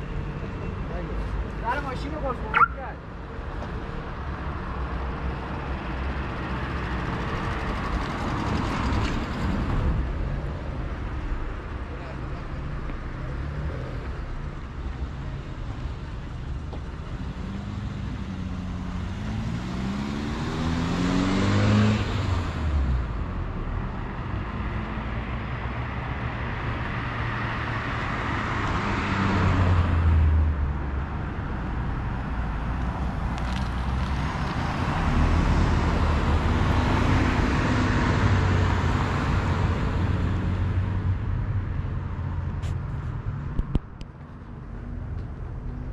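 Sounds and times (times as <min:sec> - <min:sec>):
cars passing: 0:00.0 - 0:45.9.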